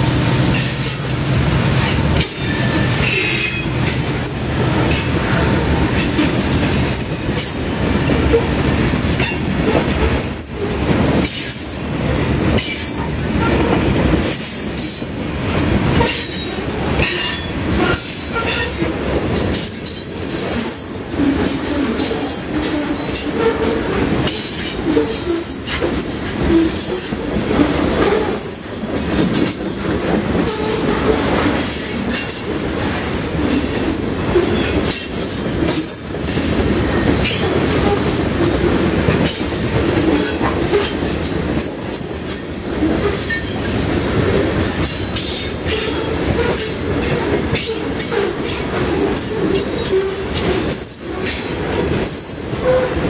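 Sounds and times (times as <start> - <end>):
freight train wheels rumbling: 0.0 - 53.0
high-pitched wheel squeals: 2.2 - 5.4, 6.1 - 9.4, 10.2 - 13.6, 28.1 - 29.8, 40.2 - 43.7.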